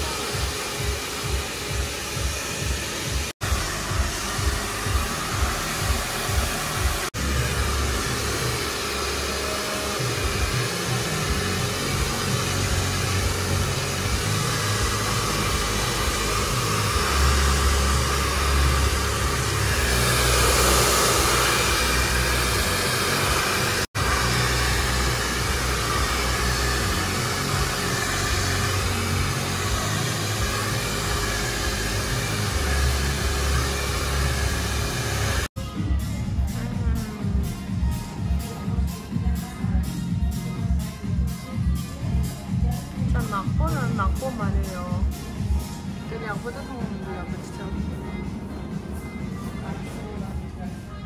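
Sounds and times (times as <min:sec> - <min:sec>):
hair dryer blowing: 0:00.0 - 0:35.6, 0:42.9 - 0:47.6.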